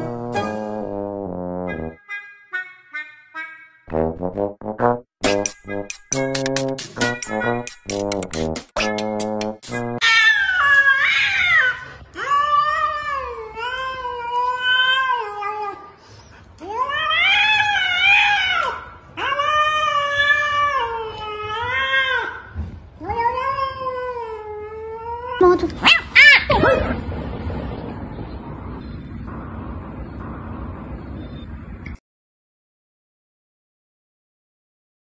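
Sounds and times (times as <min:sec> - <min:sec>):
cat yowling: 0:10.0 - 0:13.3, 0:23.0 - 0:27.0
cat sharp sweeping calls: 0:25.8 - 0:27.0.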